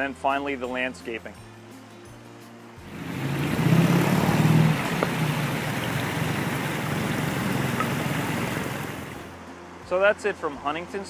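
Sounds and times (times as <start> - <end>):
waterfall splashing into pool: 2.9 - 9.3.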